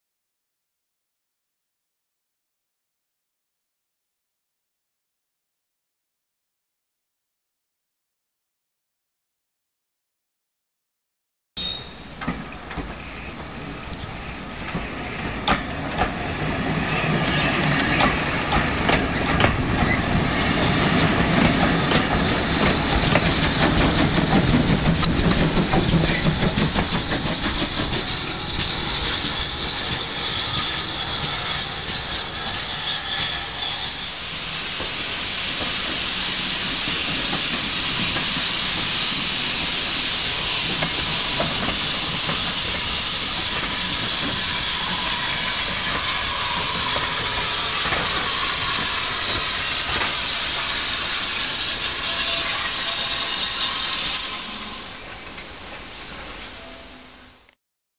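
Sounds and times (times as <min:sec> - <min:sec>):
loud steam hiss: 0:11.6 - 0:57.5
steam locomotive running past: 0:11.6 - 0:57.5.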